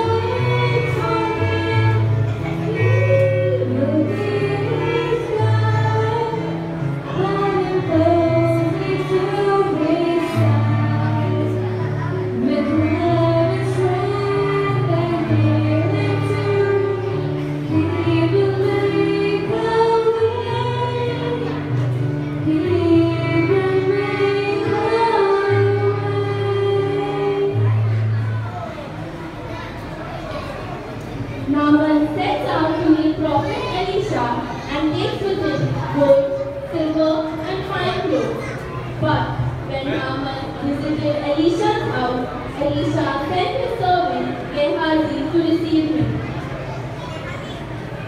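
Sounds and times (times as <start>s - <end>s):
girl singing: 2.6s - 21.6s, 22.2s - 27.9s.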